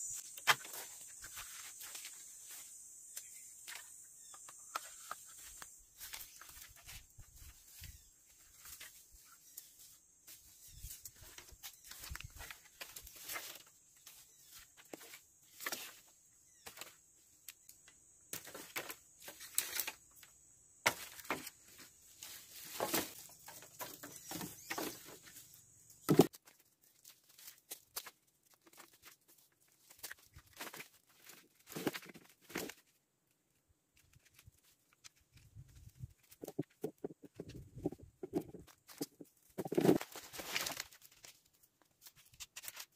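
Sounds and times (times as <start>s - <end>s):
wooden sticks knocking and clattering: 36.2s - 40.8s.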